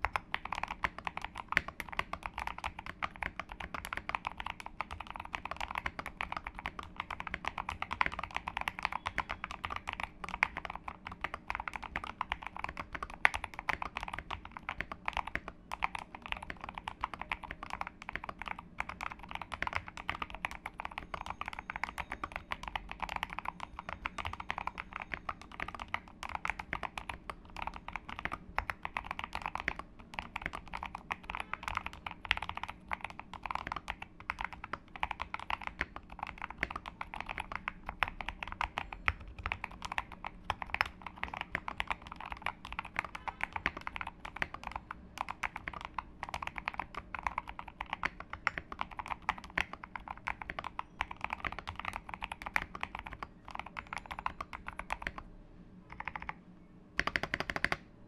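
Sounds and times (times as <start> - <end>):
fast typing on mechanical keyboard: 0.0 - 55.2, 55.9 - 56.4, 57.0 - 57.8.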